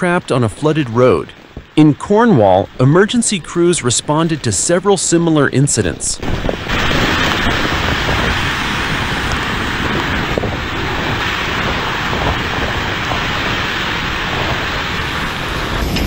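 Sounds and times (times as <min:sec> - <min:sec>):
vehicles driving on wet road: 0:00.0 - 0:16.0
strong wind buffeting microphone: 0:05.9 - 0:16.0.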